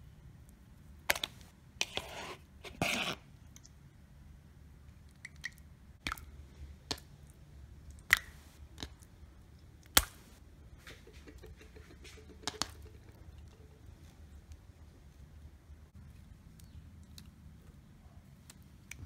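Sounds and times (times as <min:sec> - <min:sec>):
wet putty clicks and pops: 0:07.9 - 0:09.0.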